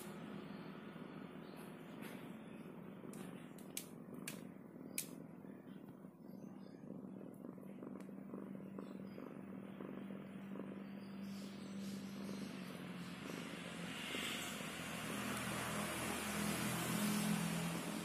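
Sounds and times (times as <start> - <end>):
cat purring: 0.0 - 18.0
sharp little clicks: 3.1 - 5.2.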